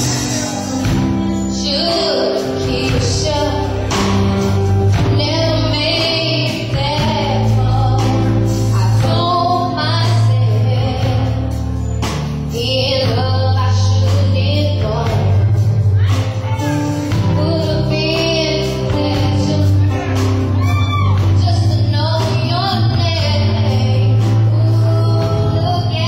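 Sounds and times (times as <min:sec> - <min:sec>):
band accompaniment: 0:00.0 - 0:26.0
bass line: 0:00.0 - 0:26.0
drums: 0:00.0 - 0:26.0
women singing: 0:01.5 - 0:11.5, 0:17.1 - 0:20.2, 0:21.1 - 0:26.0.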